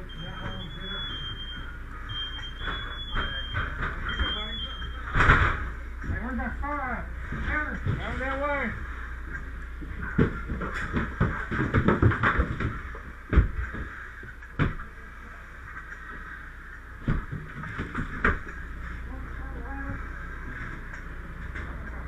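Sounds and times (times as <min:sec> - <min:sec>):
knocks and clatters: 0:09.3 - 0:14.9.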